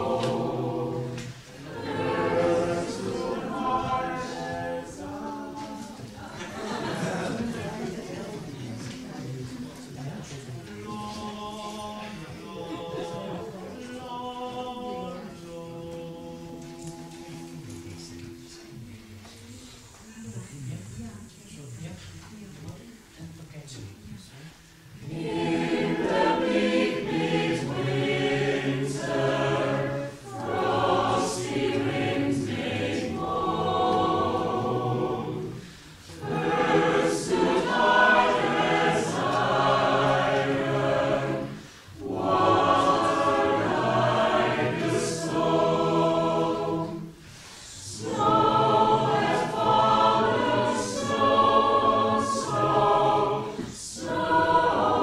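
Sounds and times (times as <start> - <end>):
mixed choir singing: 0.0 - 9.0, 10.7 - 19.2, 25.0 - 55.0
singers breathing: 35.5 - 36.2, 41.5 - 42.0, 47.2 - 47.9.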